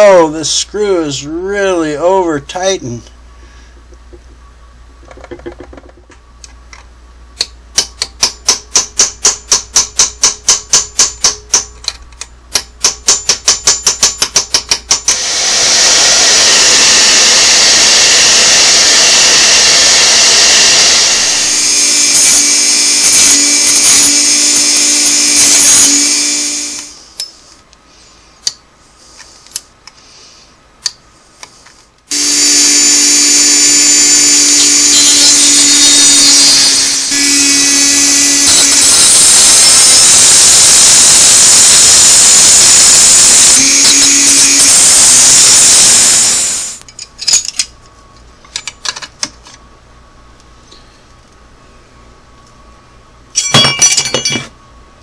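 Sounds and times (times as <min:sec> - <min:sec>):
hair dryer blowing: 0:15.1 - 0:27.0, 0:32.1 - 0:46.8
rotary tool humming: 0:15.1 - 0:27.5, 0:31.5 - 0:46.8.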